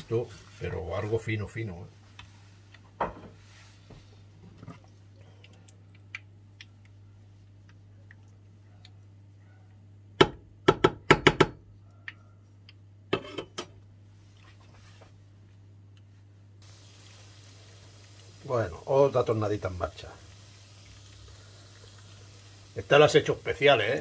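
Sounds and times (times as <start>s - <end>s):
hot oil sputtering in pan: 16.6s - 24.0s.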